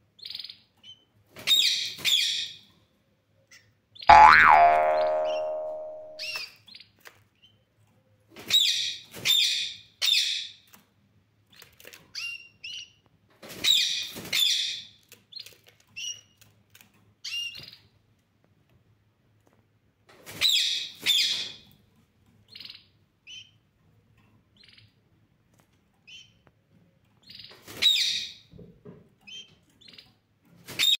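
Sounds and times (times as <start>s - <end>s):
ringing tone: 4.1s - 6.4s.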